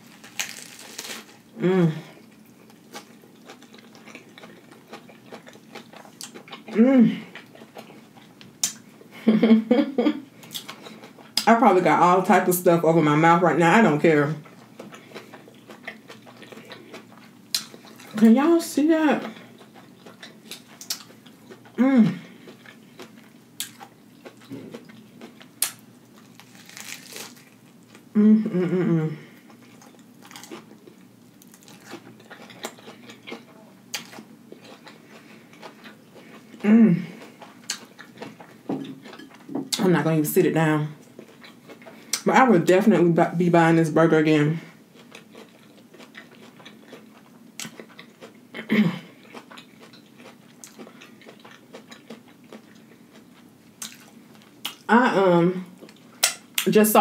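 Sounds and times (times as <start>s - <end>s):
lettuce crunching while chewing: 0.0s - 8.8s, 10.4s - 11.5s, 13.7s - 28.1s, 29.4s - 39.9s, 44.9s - 54.9s.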